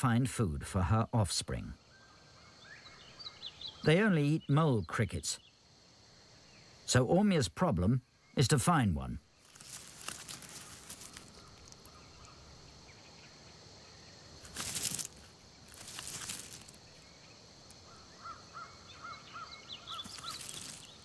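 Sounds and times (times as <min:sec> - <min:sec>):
faint nature ambience: 0:00.0 - 0:21.0
rustling noise bursts: 0:09.4 - 0:11.4, 0:14.4 - 0:16.8
short chirping calls: 0:14.6 - 0:21.0.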